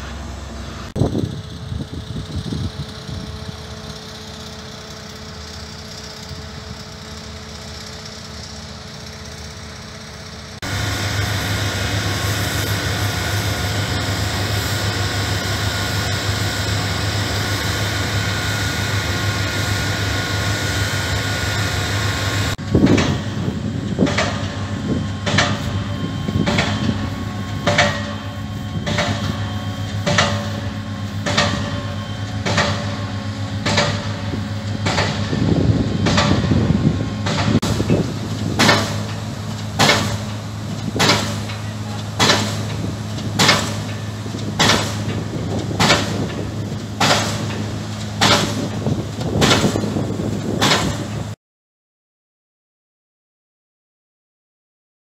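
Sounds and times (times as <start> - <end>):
diesel construction machinery droning: 0.0 - 51.4
pile hammer strikes: 38.5 - 39.2, 39.8 - 40.4, 41.0 - 41.6, 42.2 - 42.8, 43.4 - 44.0, 44.6 - 45.2, 45.8 - 46.4, 47.0 - 47.6, 48.2 - 49.9, 50.6 - 51.1.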